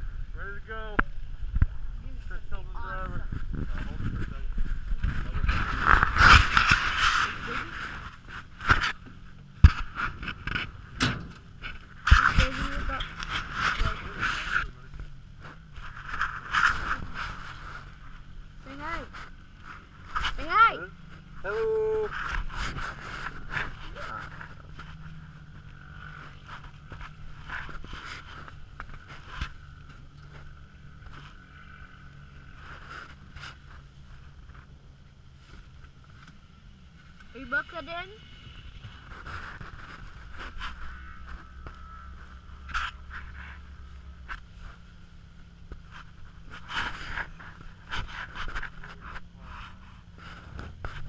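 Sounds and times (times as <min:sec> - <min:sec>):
dune buggy engine running: 0:00.0 - 0:51.0
low steady hum: 0:00.0 - 0:51.0
glove rubbing against camera: 0:03.2 - 0:10.9, 0:11.6 - 0:34.8, 0:38.6 - 0:51.0
knocks and rattles: 0:09.6 - 0:14.0.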